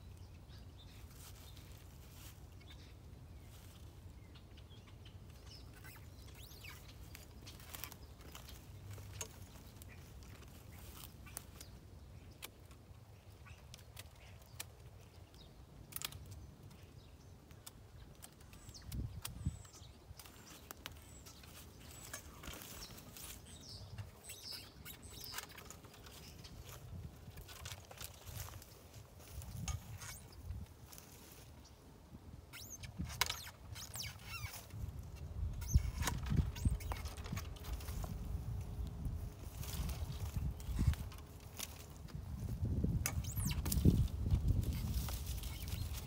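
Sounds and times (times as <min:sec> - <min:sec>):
birds chirping faintly: 0:00.0 - 0:46.0
pruning loppers clicking and snapping: 0:13.6 - 0:23.3.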